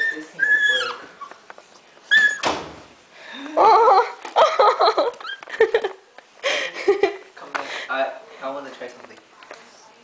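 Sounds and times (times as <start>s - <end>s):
people giggling: 3.6s - 7.3s.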